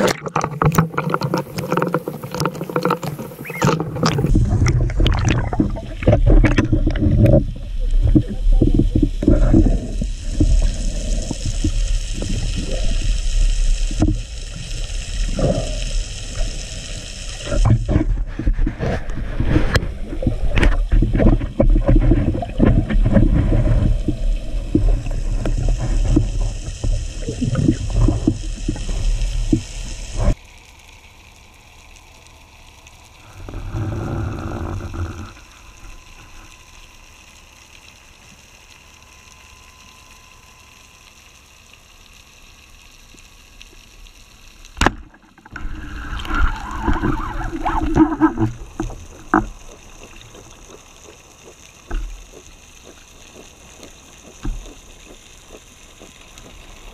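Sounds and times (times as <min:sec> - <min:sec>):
underwater knocks and rattles: 0:00.0 - 0:12.6, 0:17.4 - 0:30.4, 0:44.8 - 0:56.9
low underwater rumble: 0:00.0 - 0:30.4, 0:32.4 - 0:37.9, 0:44.7 - 0:56.9
faint underwater hush: 0:45.5 - 0:51.4.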